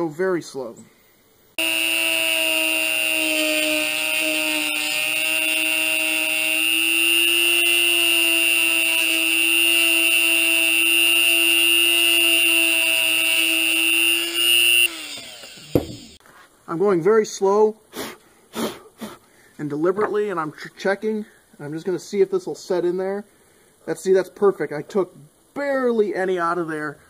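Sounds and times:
rotary tool whining: 1.5 - 16.2.

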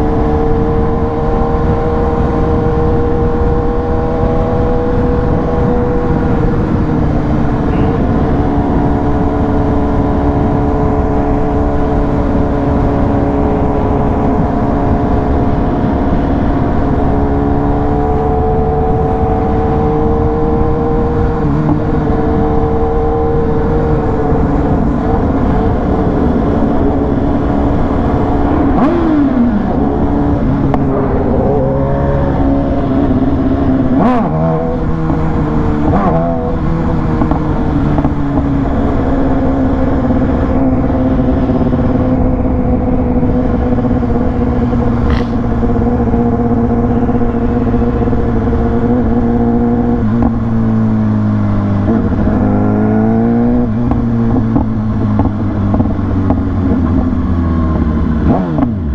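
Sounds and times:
road and wind rumble: 0.0 - 58.9
vehicle engine running: 23.3 - 58.9.

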